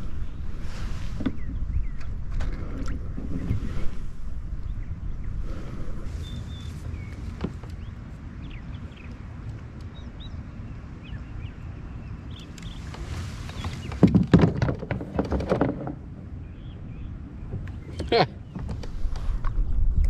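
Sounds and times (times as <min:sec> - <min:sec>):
low steady rumble: 0:15.8 - 0:20.0.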